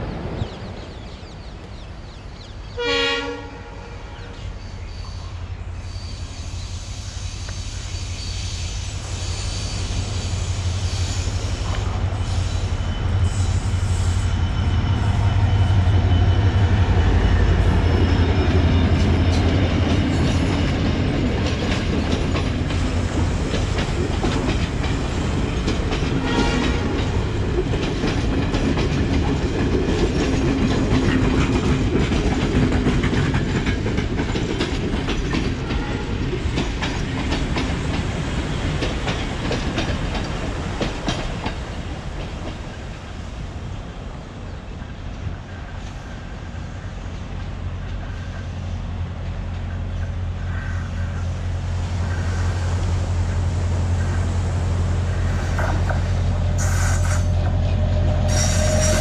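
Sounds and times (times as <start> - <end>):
train wheels clacking on rails: 6.0 - 43.2, 51.9 - 59.0
locomotive engine drone: 41.4 - 59.0.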